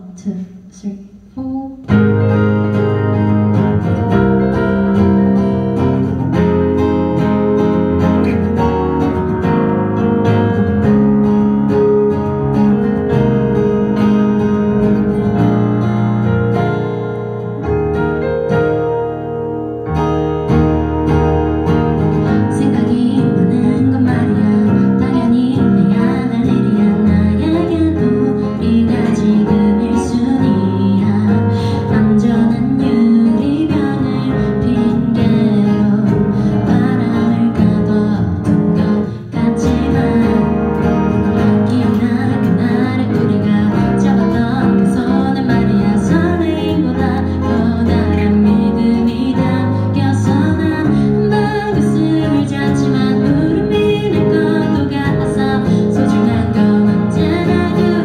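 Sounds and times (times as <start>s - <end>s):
woman singing: 0.0s - 9.1s, 22.2s - 58.0s
instrumental accompaniment: 1.2s - 58.0s.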